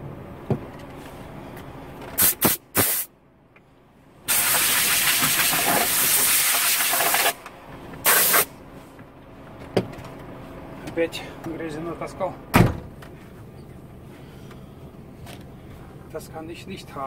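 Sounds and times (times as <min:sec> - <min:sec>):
compressed air blow gun hissing: 0:02.2 - 0:03.1, 0:04.3 - 0:07.4, 0:08.0 - 0:08.5.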